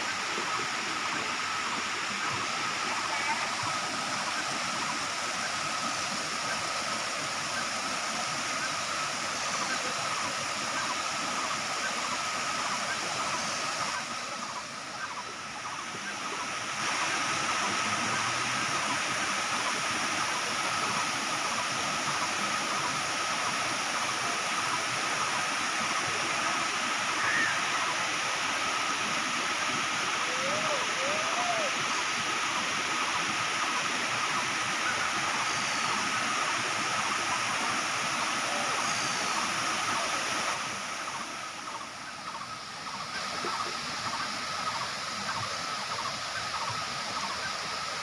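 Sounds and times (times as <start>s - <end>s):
water rushing over cascades: 0.0s - 48.0s.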